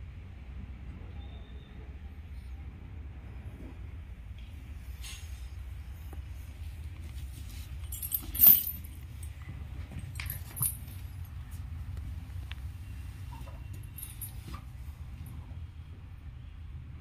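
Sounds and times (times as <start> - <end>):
metal chain jangling and clinking: 7.4 - 11.6, 13.3 - 14.7.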